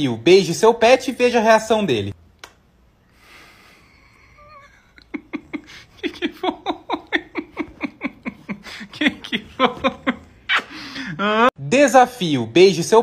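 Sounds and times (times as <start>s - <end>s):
person laughing hard: 4.1s - 11.5s.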